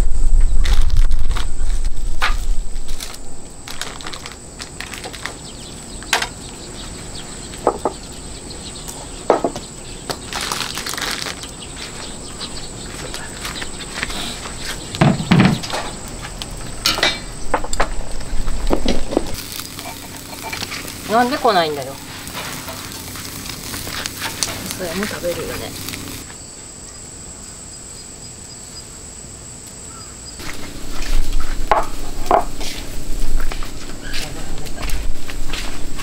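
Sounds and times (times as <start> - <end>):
dishes clattering on wooden table: 9.3 - 9.6.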